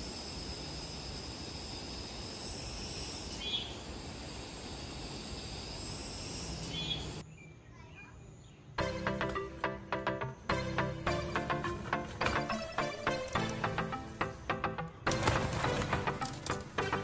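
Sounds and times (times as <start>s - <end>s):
insect chorus: 0.0s - 8.7s.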